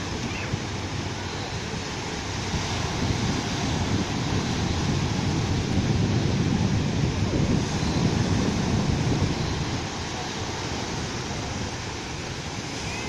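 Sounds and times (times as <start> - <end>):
sea waves breaking on beach: 0.0 - 13.0.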